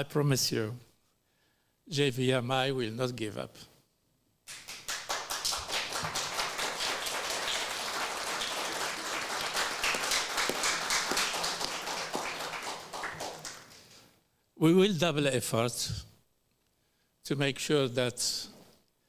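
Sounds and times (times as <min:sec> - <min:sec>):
audience applauding: 0:04.5 - 0:14.0.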